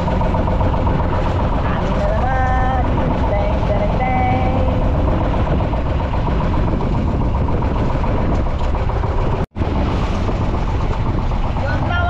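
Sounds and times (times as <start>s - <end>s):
boat engine running: 0.0s - 12.0s
water noise: 0.0s - 12.0s
wind: 0.0s - 12.0s.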